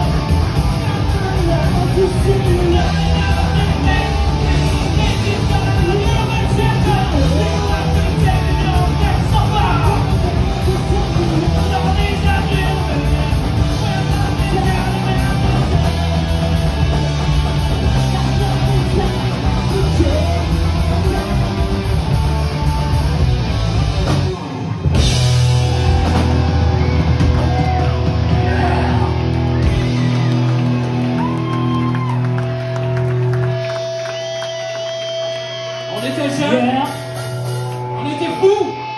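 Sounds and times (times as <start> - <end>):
punk rock band playing: 0.0 - 38.9
person singing: 0.8 - 16.9, 17.5 - 21.9.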